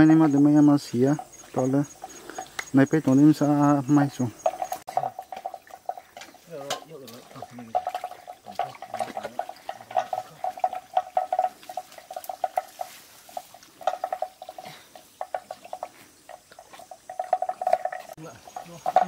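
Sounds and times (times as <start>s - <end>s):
wet clicks and splashes: 4.4s - 12.8s.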